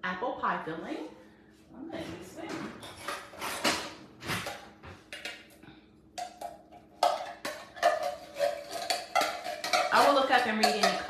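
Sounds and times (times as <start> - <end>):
spoon scraping metal can: 7.0 - 11.0.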